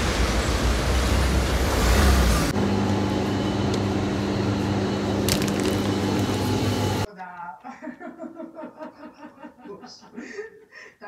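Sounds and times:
street traffic rumble: 0.0 - 7.1.

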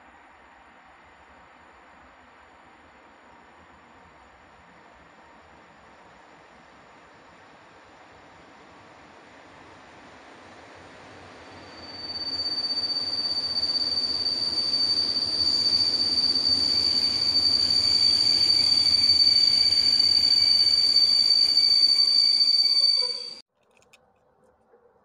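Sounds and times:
train rumble: 0.5 - 23.4
wheel and brake squeal: 11.2 - 23.4.

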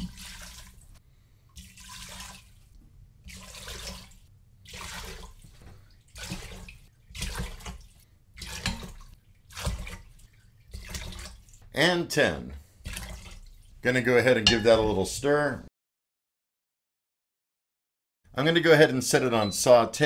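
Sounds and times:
water pouring and splashing: 0.0 - 11.8, 12.6 - 13.8.

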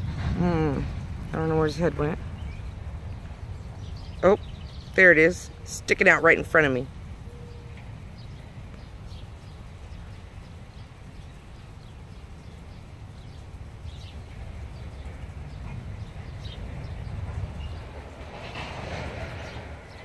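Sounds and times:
wind rumble on microphone: 0.0 - 20.0
faint bird chirps: 7.2 - 18.6.

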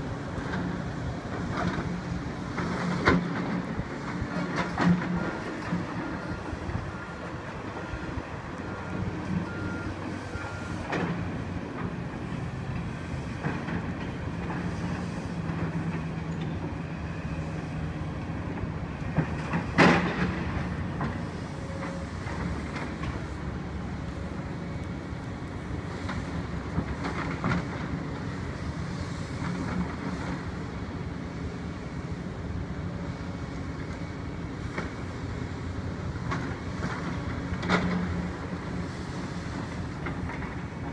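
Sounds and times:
diesel engine rumble: 0.0 - 40.9
reversing beeper beeping: 6.0 - 10.8.

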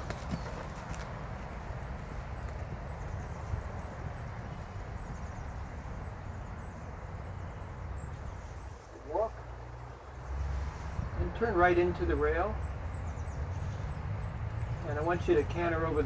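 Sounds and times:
insect chirping: 1.4 - 9.0.

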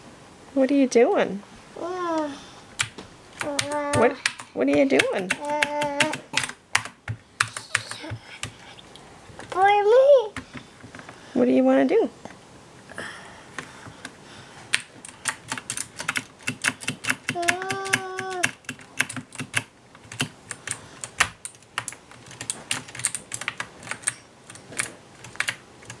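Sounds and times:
child vocal sound: 1.8 - 2.5, 3.4 - 4.4, 5.3 - 6.5, 7.5 - 8.5, 9.5 - 10.4, 17.3 - 18.6.

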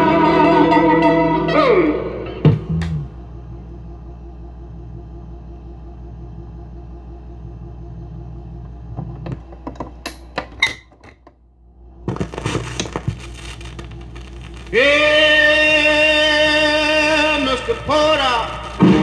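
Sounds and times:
music from speaker: 0.0 - 2.8
low steady hum: 0.0 - 19.0
record changer mechanism clattering: 8.9 - 11.4
stylus noise: 12.6 - 19.0.

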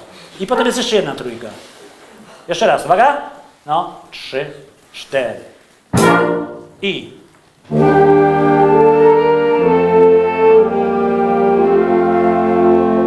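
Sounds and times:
wind orchestra playing chords: 6.0 - 6.8, 7.7 - 13.0.

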